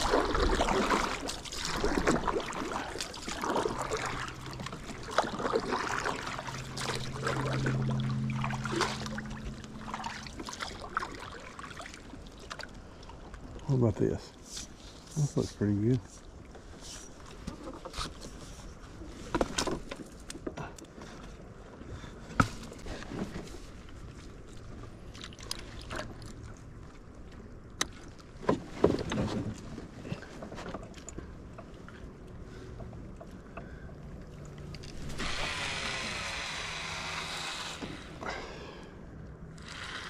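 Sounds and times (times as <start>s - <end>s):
fishing reel whirring: 35.2s - 38.2s, 39.6s - 40.0s.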